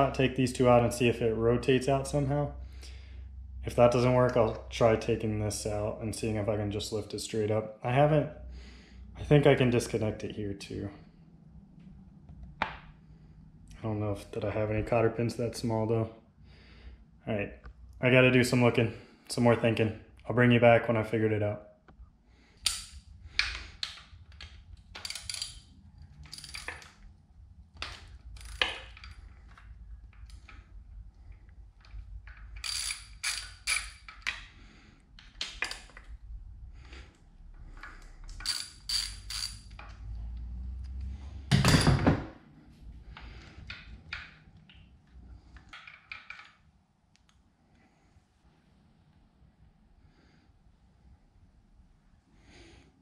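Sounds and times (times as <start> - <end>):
socket ratchet clicking: 22.6 - 27.0, 27.8 - 30.6, 31.8 - 34.5, 38.3 - 40.0.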